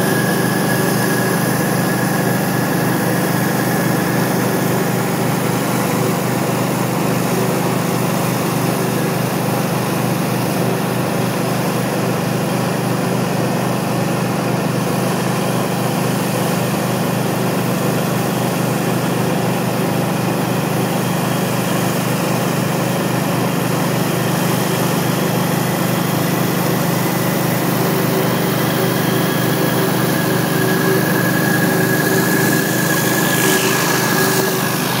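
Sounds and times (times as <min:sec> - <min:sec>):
pressure washer engine drone: 0:00.0 - 0:35.0
high-pressure water jets hissing: 0:25.0 - 0:35.0.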